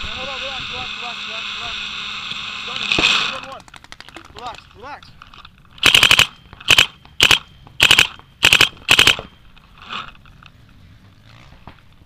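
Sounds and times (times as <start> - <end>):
paintball marker firing: 5.8 - 9.4.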